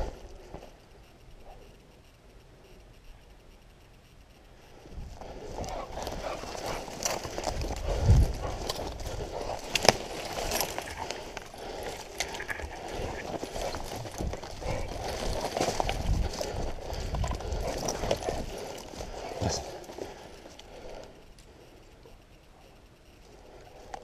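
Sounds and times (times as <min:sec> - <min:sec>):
branches brushing: 0:05.2 - 0:21.1.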